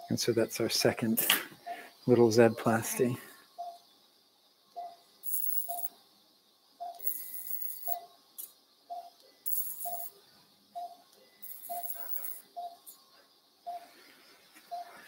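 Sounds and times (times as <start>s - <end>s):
patient monitor beeping: 4.8s - 5.9s, 6.8s - 8.1s, 8.9s - 10.2s, 10.8s - 12.9s, 14.7s - 15.0s.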